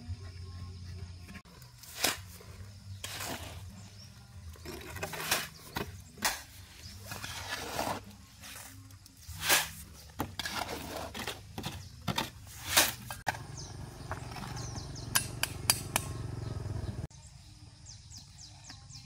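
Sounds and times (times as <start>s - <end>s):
shovel scraping metal wheelbarrow: 1.3s - 15.2s.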